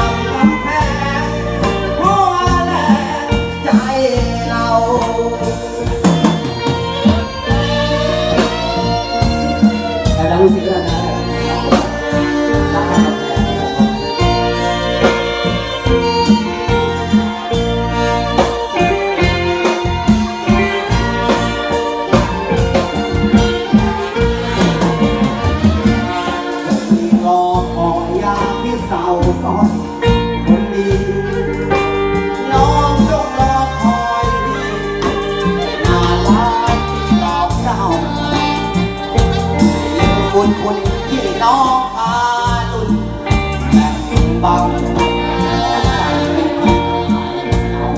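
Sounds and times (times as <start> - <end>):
live band music: 0.0 - 47.9
man singing: 0.0 - 47.9.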